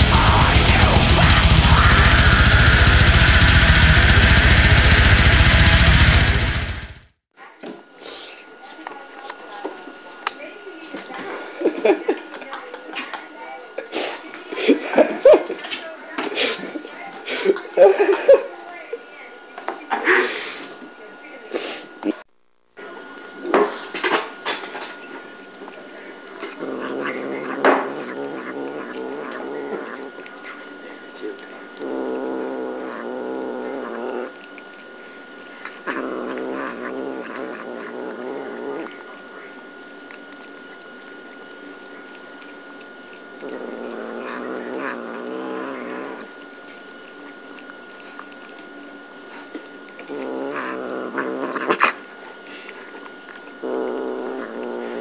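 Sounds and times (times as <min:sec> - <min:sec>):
cat growling: 0:00.0 - 0:07.0, 0:26.0 - 0:55.0.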